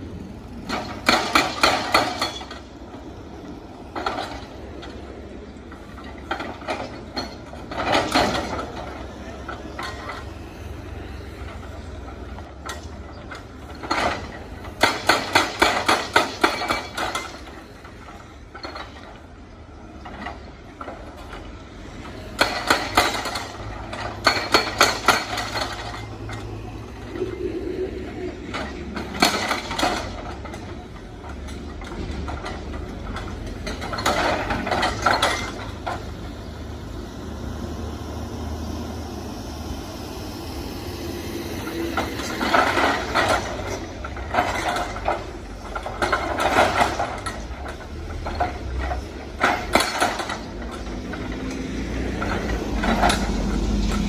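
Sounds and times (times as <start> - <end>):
excavator engine rumble: 0.0 - 54.0
hydraulic breaker hammering stone: 0.7 - 2.7, 6.0 - 10.2, 12.6 - 19.2, 22.2 - 26.4, 28.5 - 36.1, 42.2 - 51.3.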